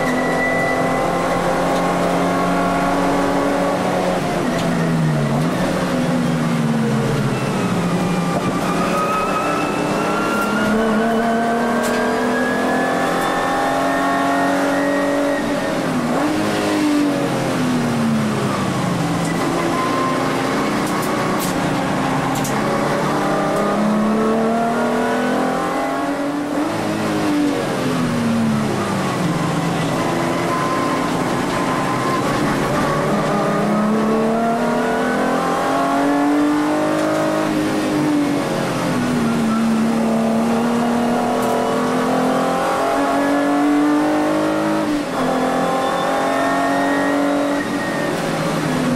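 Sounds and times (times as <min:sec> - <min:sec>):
car engine accelerating: 0:00.0 - 0:48.9.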